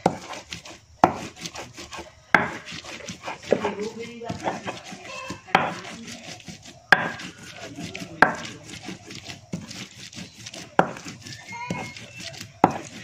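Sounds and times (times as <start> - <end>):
grinder scraping and rubbing: 0.0 - 13.0
sharp knocks of hand grinder: 1.0 - 1.6, 2.3 - 4.7, 5.3 - 6.0, 6.9 - 7.6, 10.5 - 11.9, 12.6 - 13.0.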